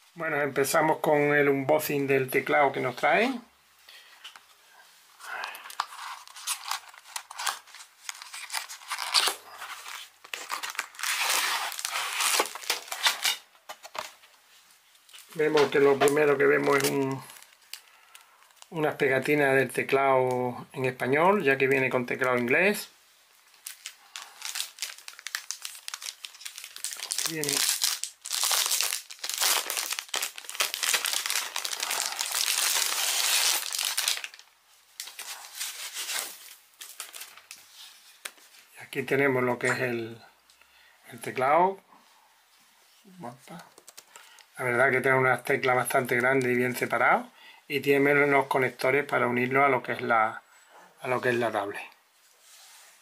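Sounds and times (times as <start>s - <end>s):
plastic bag crinkling: 5.3s - 14.1s, 23.4s - 37.7s
cardboard tearing: 5.8s - 13.5s, 23.6s - 34.4s.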